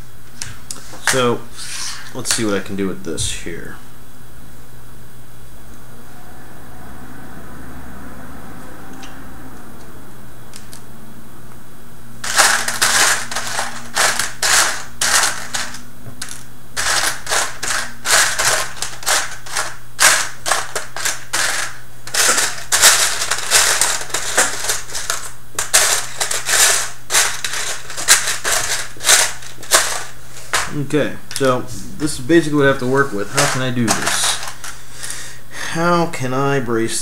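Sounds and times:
steady low hum: 0.0 - 37.0
plastic parts clattering: 12.2 - 31.5, 32.7 - 34.8.

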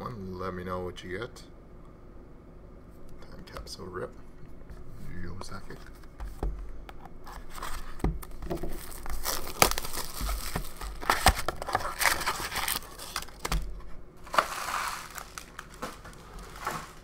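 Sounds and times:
foil packs crinkling: 7.3 - 17.0.

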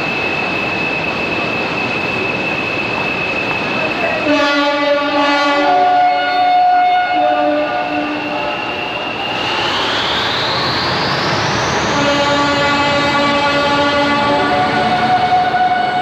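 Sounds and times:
diesel locomotive engine working hard: 0.0 - 16.0
turbocharger whistle: 4.3 - 16.0.

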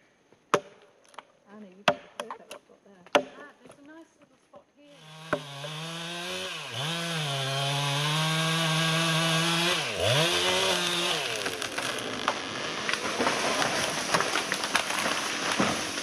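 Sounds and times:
chainsaw cutting tree: 5.0 - 16.0
tree cracking and falling: 5.6 - 16.0.

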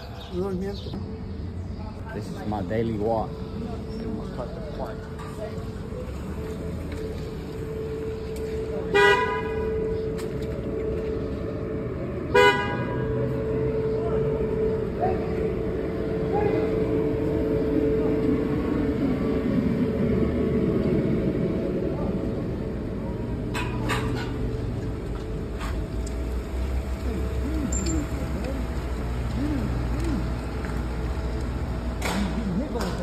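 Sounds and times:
street noise hum: 0.0 - 33.0
vehicle horn honks: 8.8 - 10.0, 12.3 - 13.8.

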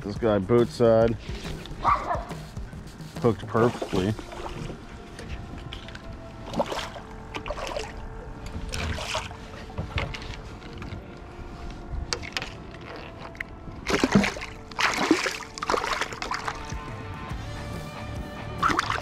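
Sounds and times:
faint background music: 0.0 - 19.0
fish splashing at water surface: 13.9 - 16.8, 18.6 - 19.0.

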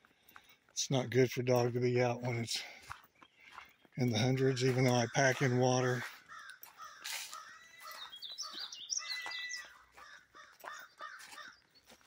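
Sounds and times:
crows cawing: 4.4 - 11.7.

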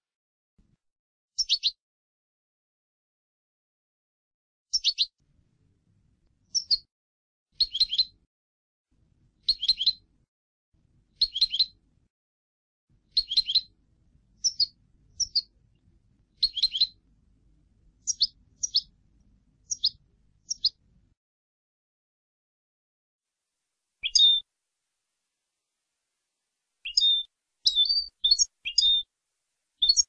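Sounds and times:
goldfinch twittering: 24.0 - 24.4, 26.8 - 29.0, 29.8 - 30.0.

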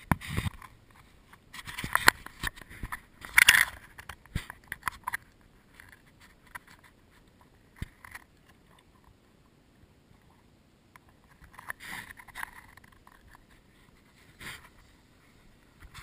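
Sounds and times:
camera handling scrapes and clicks: 0.1 - 1.0, 1.6 - 5.2.

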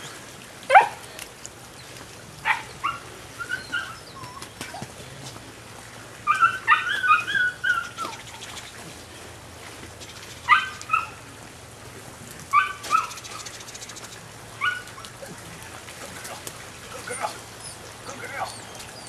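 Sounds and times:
puppy whining: 2.8 - 4.9, 6.3 - 8.3, 16.9 - 19.0.

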